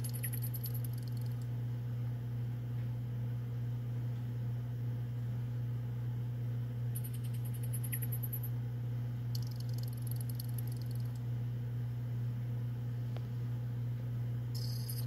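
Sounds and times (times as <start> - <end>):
high-pitched insect chirping: 0.0 - 1.3, 7.0 - 8.5, 9.4 - 11.1, 14.6 - 15.0
steady low hum: 0.0 - 15.0.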